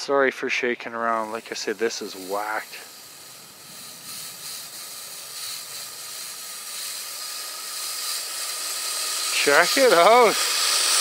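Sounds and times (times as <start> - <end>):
toy snowcat electric drive whine: 0.8 - 11.0
tracks churning through snow: 9.3 - 10.6.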